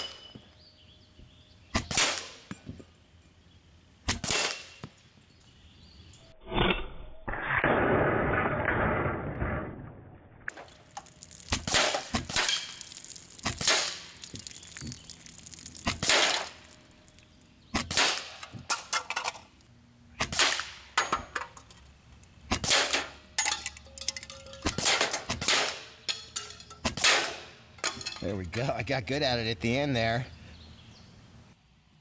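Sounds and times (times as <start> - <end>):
pellets hitting tin targets: 0.0 - 0.4, 10.5 - 19.5, 22.5 - 28.5
air rifle shots: 1.8 - 2.5, 17.8 - 18.4, 20.2 - 20.9, 22.5 - 23.1, 26.9 - 27.5
drink can bursting and spraying: 10.5 - 18.4.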